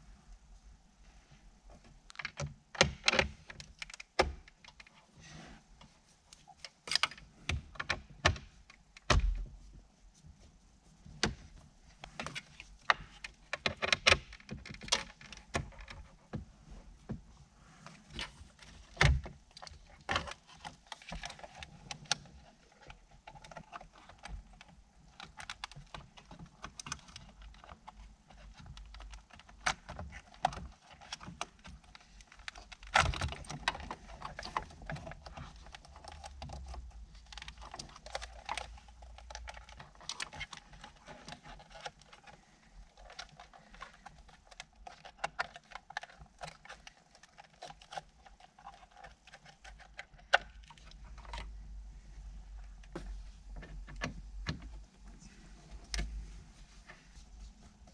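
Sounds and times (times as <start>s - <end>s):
plastic clicks and rattles: 2.1s - 5.0s, 11.2s - 16.4s, 18.1s - 51.6s.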